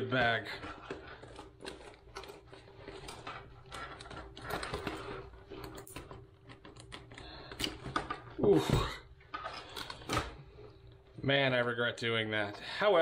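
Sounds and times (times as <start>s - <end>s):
bag rustling: 0.0s - 6.8s.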